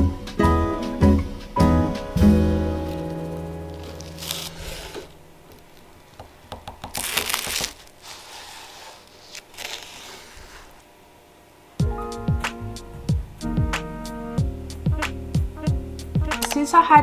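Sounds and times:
pastry crust crunching: 2.7 - 10.8.

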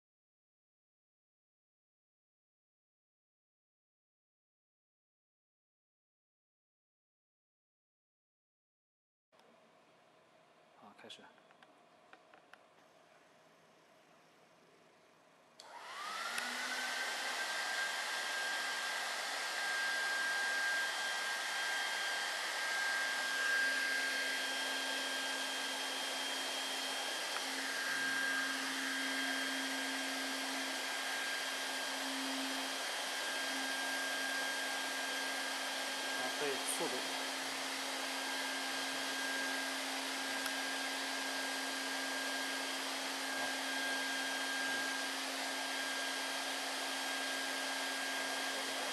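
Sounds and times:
hot air gun blower whine: 15.6 - 48.9.

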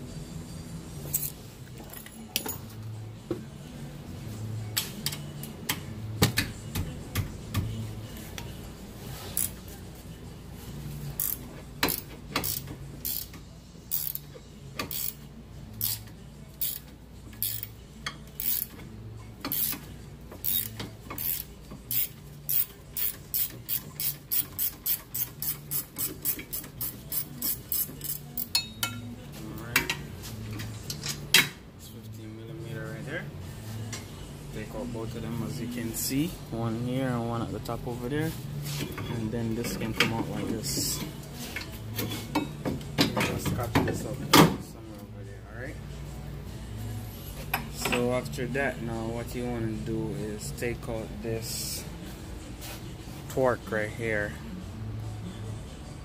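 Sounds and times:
ratcheting wrench clicking: 11.2 - 15.2, 15.8 - 18.8, 19.5 - 28.6.

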